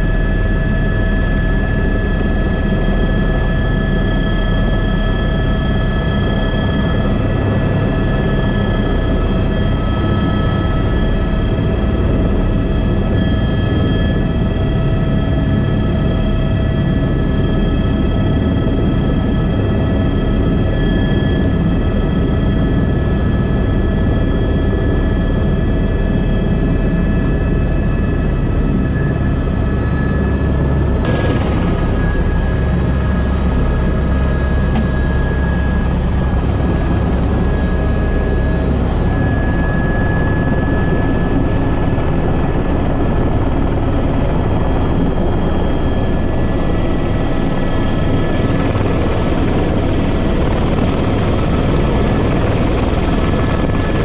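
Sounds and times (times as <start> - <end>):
helicopter rotor and engine drone: 0.0 - 54.0
high whine tones: 28.9 - 40.7.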